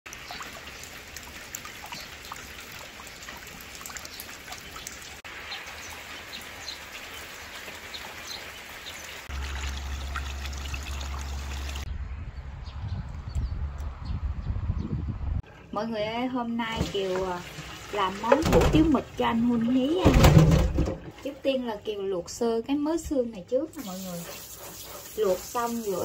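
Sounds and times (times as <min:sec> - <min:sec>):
rain pattering on water: 0:00.1 - 0:11.8.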